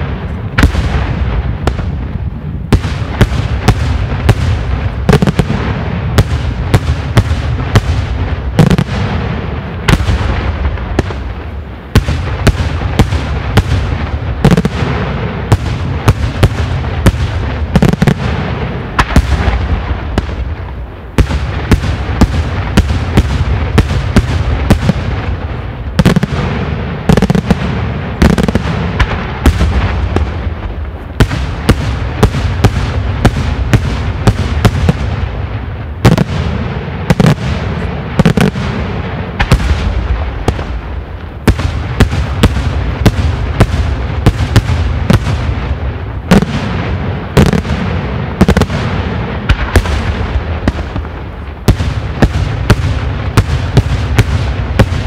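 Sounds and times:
fireworks bangs: 0.0 - 55.0.

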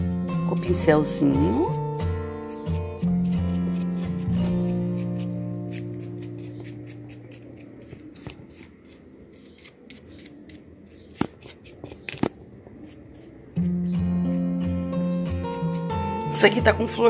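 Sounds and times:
soft guitar music: 0.0 - 7.7, 13.5 - 17.0
paintbrush brushing on plant pot: 4.9 - 12.2.

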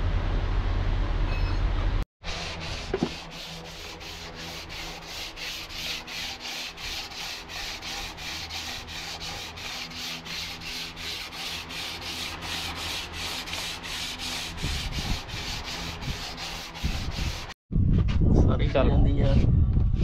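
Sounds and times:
sanding block sanding filler: 2.2 - 17.6.

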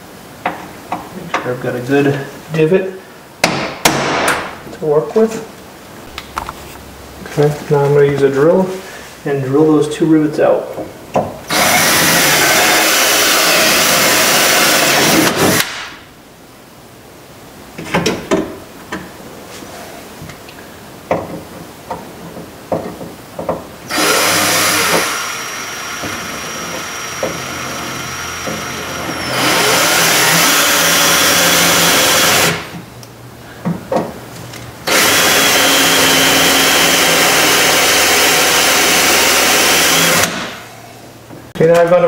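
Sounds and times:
cordless drill whining: 23.9 - 32.6, 34.8 - 40.4.

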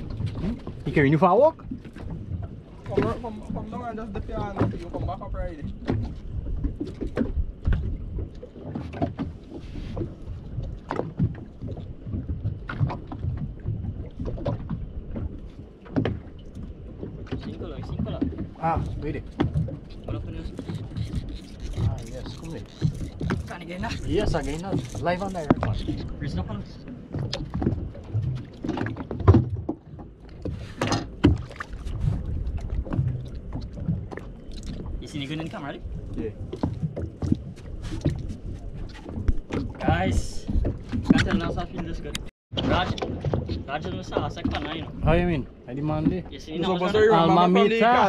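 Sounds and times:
rush of water: 0.0 - 29.7
knocks and splashes: 0.0 - 48.0
water lapping against boat hull: 0.0 - 48.0
wind rumbling on microphone: 0.0 - 48.0
knocks on a boat: 15.9 - 16.2, 17.2 - 19.8, 27.2 - 32.2, 39.1 - 45.2, 45.8 - 46.4.

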